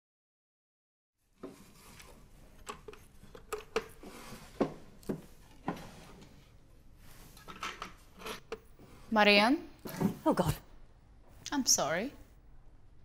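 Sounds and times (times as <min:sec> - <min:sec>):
objects knocking and clicking: 0:02.6 - 0:05.9, 0:07.4 - 0:08.8.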